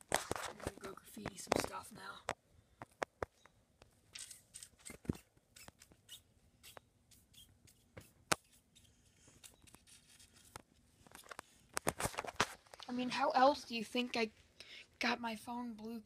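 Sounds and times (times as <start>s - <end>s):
scratchy rustles: 0.0s - 1.9s, 4.2s - 12.8s.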